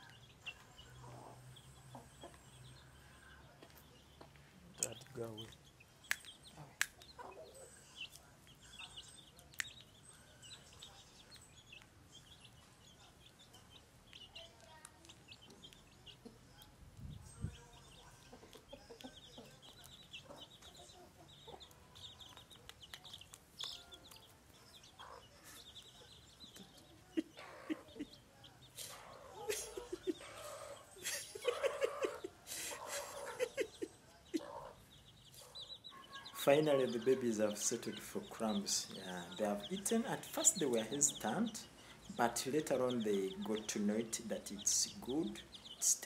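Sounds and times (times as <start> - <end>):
chicks peeping: 0.0 - 46.0
hen clucking: 17.5 - 46.0.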